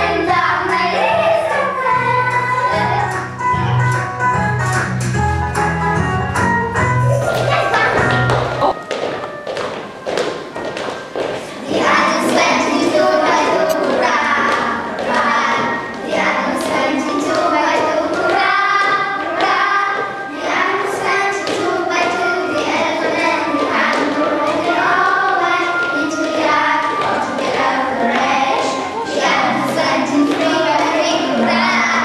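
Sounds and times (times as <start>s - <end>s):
children singing together: 0.0s - 3.2s, 11.3s - 32.0s.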